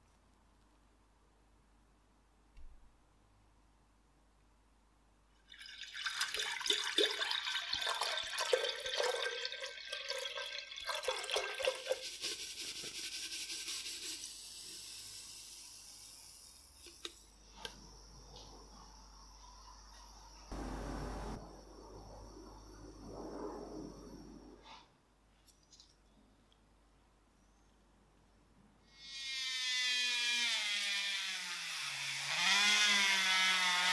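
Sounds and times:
water pouring into glass jar: 5.4s - 12.1s
steady hiss: 12.0s - 25.0s.

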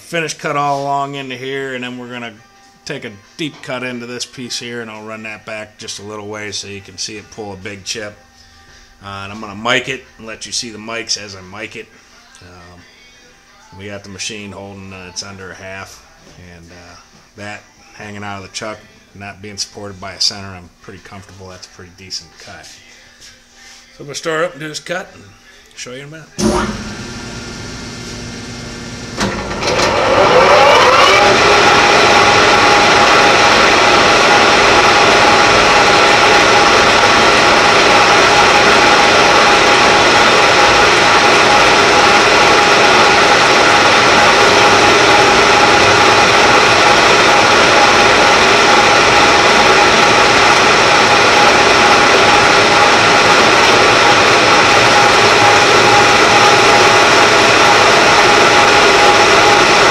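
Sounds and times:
lathe running up and whining: 26.4s - 59.9s.

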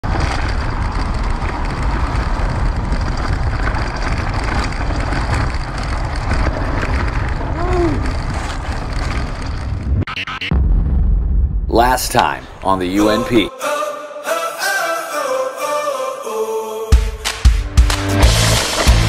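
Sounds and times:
wind rush on microphone: 0.0s - 10.1s
rumbling ride noise: 0.0s - 10.9s.

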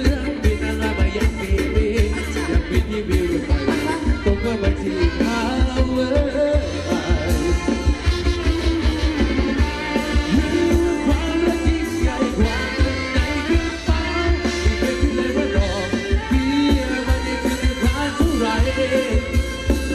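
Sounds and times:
dance band with singer: 0.0s - 19.9s.

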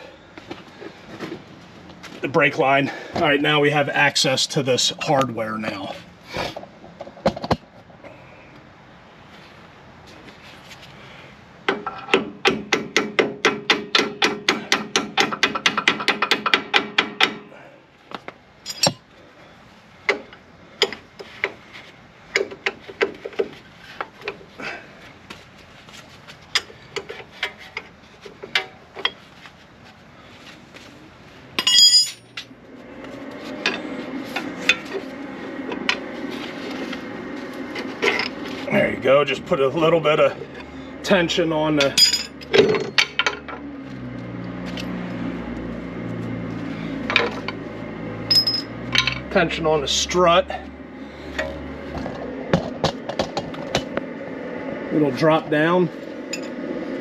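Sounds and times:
steady hum: 17.4s - 43.6s, 44.4s - 57.0s.

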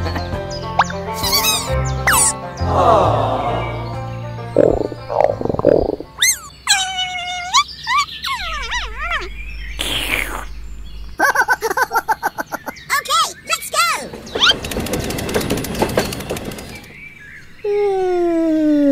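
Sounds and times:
cartoon blips: 0.8s - 2.3s, 4.6s - 6.5s, 8.2s - 11.3s
gliding high cartoon calls: 0.8s - 2.4s, 4.6s - 12.6s
fast gibberish chattering: 1.2s - 2.4s, 4.6s - 6.6s
short whoosh: 8.4s - 11.2s.

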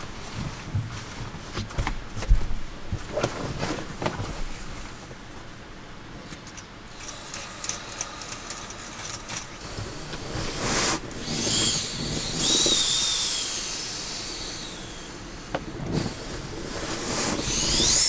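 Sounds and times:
soft handling clicks and rustles: 0.0s - 10.6s
air hissing through a valve: 7.0s - 18.0s.

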